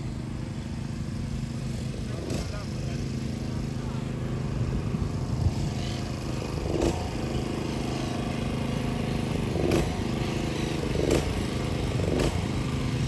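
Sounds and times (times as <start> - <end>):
motor engine running: 0.0 - 13.0.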